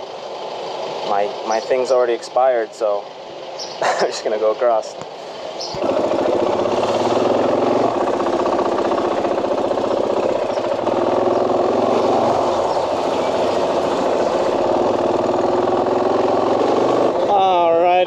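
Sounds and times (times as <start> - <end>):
motorcycle engine running: 5.6 - 18.0.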